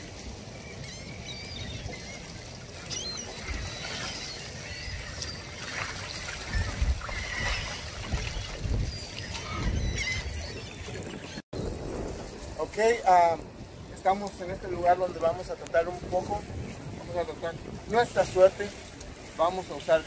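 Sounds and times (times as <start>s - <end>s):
small waves lapping: 0.0s - 20.0s
wind gusting on microphone: 0.0s - 20.0s
gulls calling: 0.1s - 11.8s.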